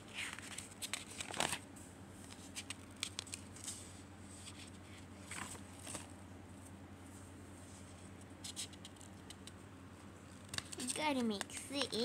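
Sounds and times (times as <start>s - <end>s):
paper pages rustling: 0.0s - 6.2s, 10.4s - 12.0s.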